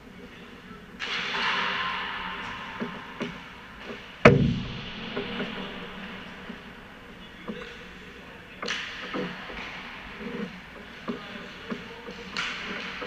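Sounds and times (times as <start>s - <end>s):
sticks tapping pucks: 8.6s - 13.0s.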